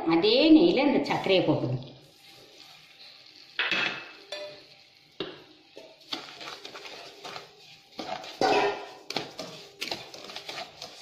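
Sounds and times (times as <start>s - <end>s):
spatula scraping sugar in pan: 2.0s - 3.4s, 5.7s - 11.0s.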